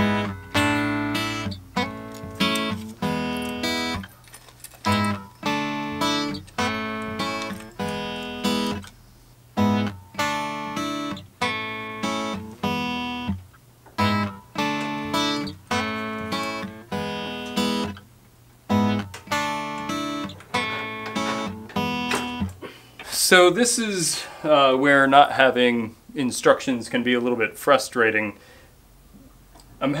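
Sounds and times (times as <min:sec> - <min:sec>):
acoustic guitar strumming chords: 0:00.0 - 0:04.1, 0:04.8 - 0:22.7.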